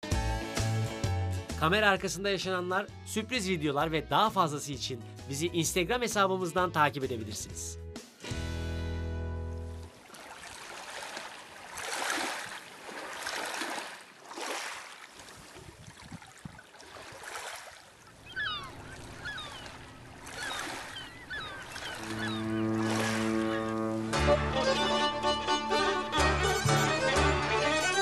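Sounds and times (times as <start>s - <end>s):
music: 0.0s - 9.9s, 22.0s - 28.0s
sea water washing: 9.8s - 24.9s
gulls calling: 17.9s - 28.0s.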